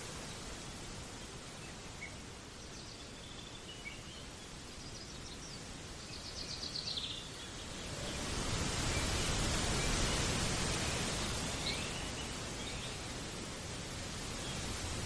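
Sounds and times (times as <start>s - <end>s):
steady rushing noise: 7.3s - 15.0s.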